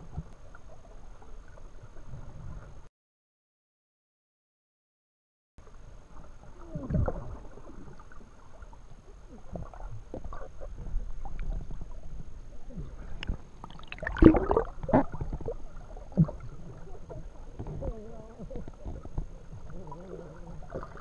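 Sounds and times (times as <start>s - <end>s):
muffled underwater swishing: 6.1s - 21.0s
water splash: 13.6s - 16.5s.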